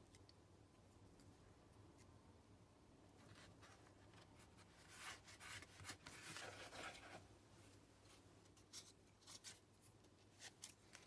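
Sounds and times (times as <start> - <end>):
paper rustling: 3.2 - 7.2.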